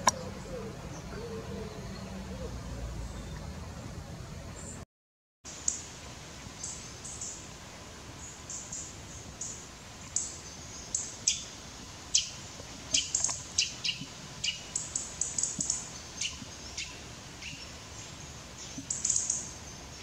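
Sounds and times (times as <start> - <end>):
robin calling: 8.5 - 17.8.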